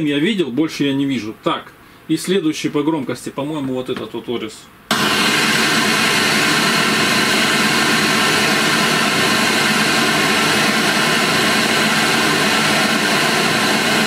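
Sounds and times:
loud steady hiss: 4.9s - 14.0s.

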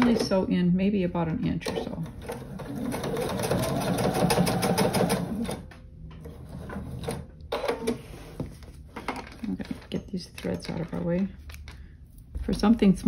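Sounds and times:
sewing machine stitching: 1.7s - 5.6s.

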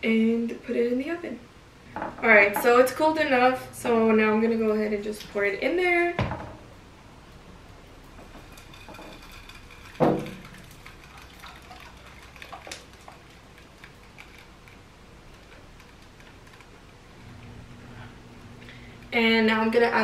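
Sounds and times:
custard pouring: 8.0s - 17.3s.

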